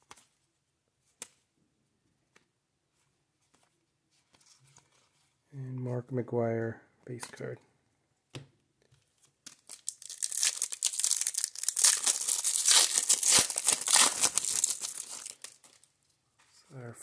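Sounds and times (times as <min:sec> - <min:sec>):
foil wrapper tearing and crinkling: 0:09.5 - 0:15.9.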